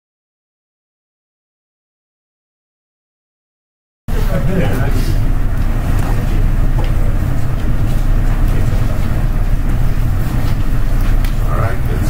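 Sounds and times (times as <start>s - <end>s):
low rumbling hum: 4.1s - 12.0s.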